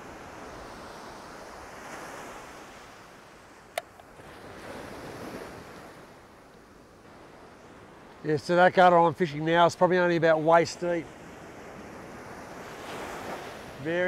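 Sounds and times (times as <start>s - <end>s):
ocean surf breaking: 0.0s - 14.0s
sharp click: 3.8s - 4.1s.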